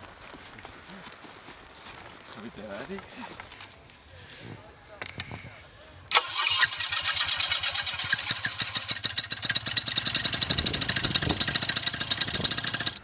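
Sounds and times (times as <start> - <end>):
paramotor engine running: 6.2 - 13.0.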